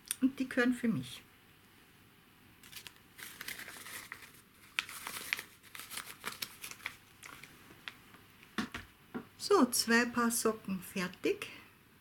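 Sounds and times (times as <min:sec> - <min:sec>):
hands crinkling and rustling socks: 0:02.6 - 0:08.8.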